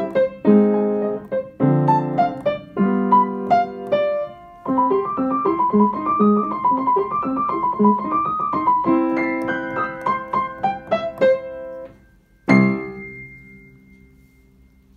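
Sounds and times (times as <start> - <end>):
upright piano playing: 0.0 - 14.9
loud ringing piano chord: 11.9 - 14.9.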